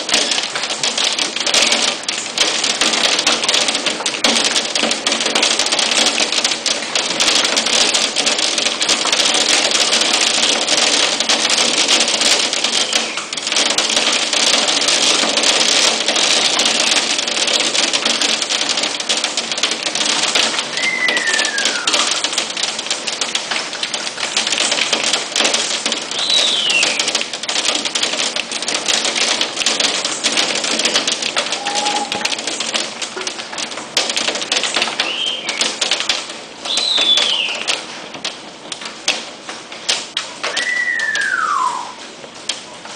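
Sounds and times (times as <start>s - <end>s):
hail clattering: 0.0s - 42.9s
heavy rain downpour: 0.0s - 42.9s
descending whistle: 20.7s - 22.0s, 31.6s - 32.3s, 40.5s - 42.0s.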